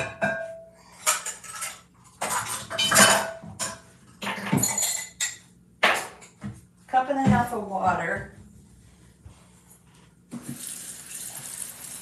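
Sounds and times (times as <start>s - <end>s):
dishes and utensils clattering: 0.0s - 6.5s.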